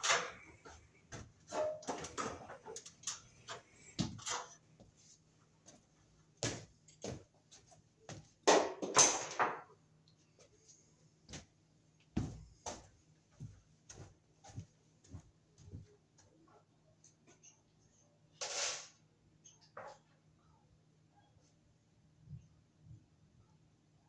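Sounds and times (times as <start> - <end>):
footsteps on stepladder: 0.0 - 9.4, 12.1 - 16.4.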